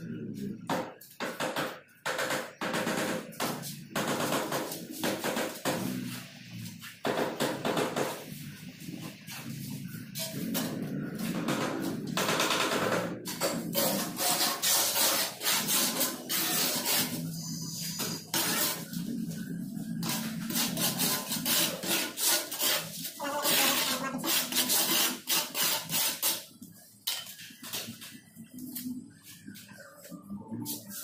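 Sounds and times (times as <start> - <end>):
hand tools scraping tile and mortar: 13.3 - 19.0, 20.0 - 28.1.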